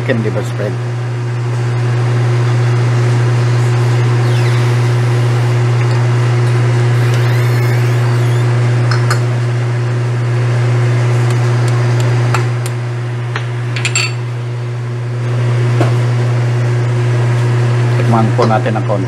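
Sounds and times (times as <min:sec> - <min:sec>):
steady low hum: 0:03.3 - 0:15.0.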